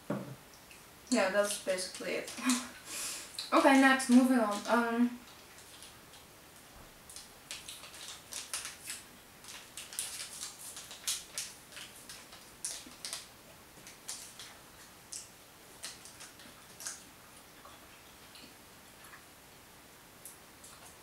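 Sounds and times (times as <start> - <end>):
plastic wrapper crinkling: 7.1 - 17.0.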